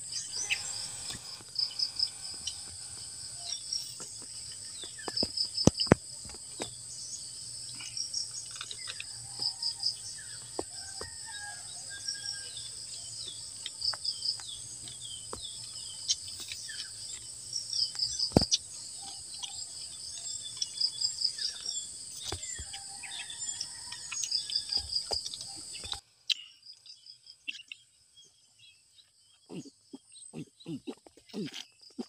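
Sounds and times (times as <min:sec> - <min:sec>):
pulsed insect trills: 0:00.0 - 0:26.0
insect hum: 0:00.0 - 0:32.0
eating with hands clicks and smacks: 0:07.7 - 0:11.1, 0:13.3 - 0:26.0, 0:30.4 - 0:32.0.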